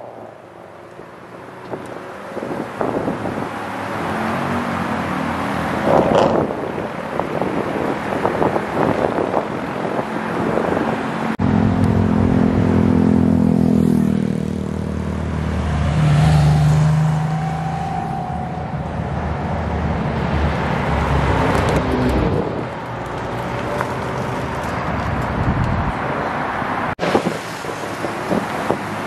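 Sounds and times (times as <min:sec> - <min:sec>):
cars driving past: 0:00.0 - 0:29.0
wind noise on microphone: 0:01.7 - 0:03.8, 0:05.7 - 0:11.4, 0:17.7 - 0:23.0, 0:24.0 - 0:29.0.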